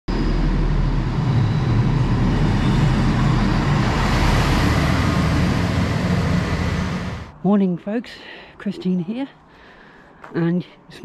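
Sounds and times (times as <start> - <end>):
train wheels rumbling on rails: 0.1 - 7.3
diesel engines droning: 0.1 - 7.4.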